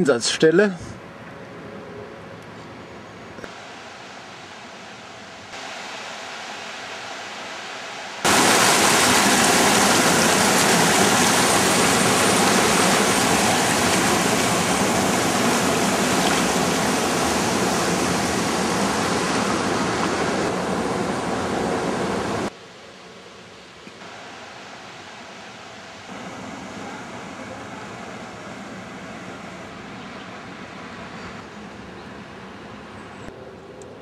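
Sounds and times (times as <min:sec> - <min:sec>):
quiet river flow: 0:01.0 - 0:34.0
whitewater rushing through sluice: 0:05.6 - 0:22.5.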